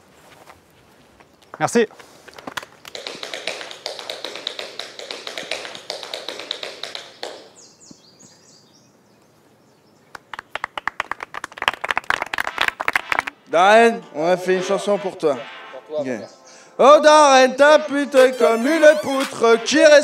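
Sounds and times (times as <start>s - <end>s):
guests applauding: 2.9s - 7.1s, 10.2s - 13.4s.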